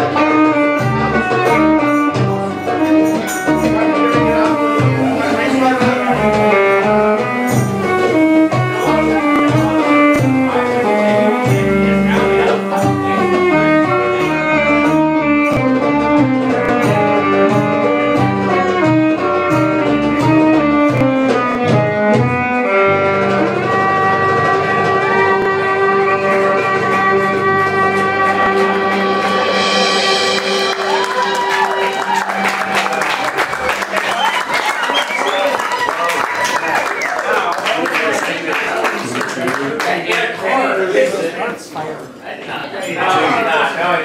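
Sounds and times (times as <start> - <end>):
plucked strings: 0.0 - 31.4
violin: 0.0 - 36.6
bass: 0.0 - 37.0
steady drone: 3.5 - 15.3, 25.0 - 33.7.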